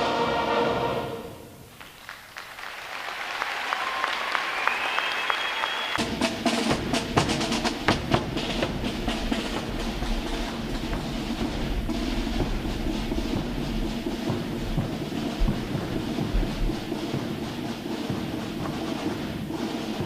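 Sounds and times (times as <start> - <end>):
drums beating march cadence: 0.0 - 20.0
audience applause: 1.7 - 6.0
band music: 5.5 - 20.0.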